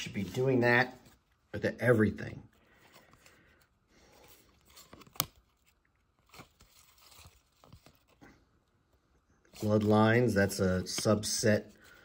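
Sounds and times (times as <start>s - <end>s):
trading cards rustling: 0.0s - 8.6s, 9.4s - 12.0s
card snapping: 4.9s - 5.4s.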